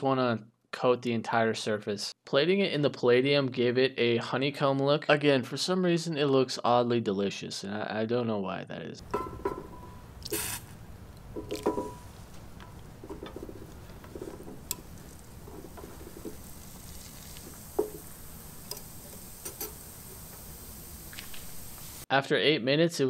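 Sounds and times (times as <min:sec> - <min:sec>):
glassy taps and rings: 0:09.1 - 0:10.0, 0:11.4 - 0:12.2
gas bubbles fizzing: 0:09.1 - 0:22.0.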